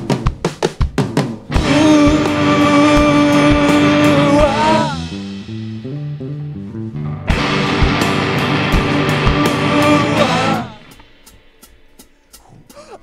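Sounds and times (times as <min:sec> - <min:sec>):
live rock band: 0:00.0 - 0:12.3
picked electric guitar notes: 0:01.5 - 0:11.1.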